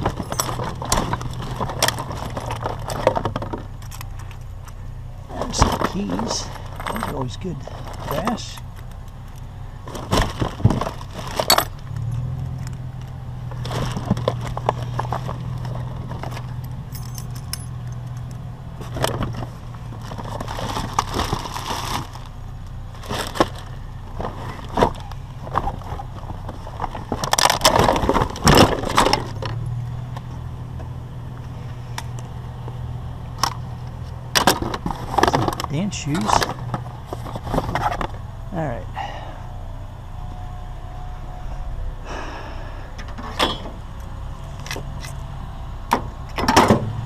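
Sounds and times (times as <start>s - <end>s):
steady low hum: 0.0s - 47.0s
metal pieces clinking: 16.6s - 18.4s.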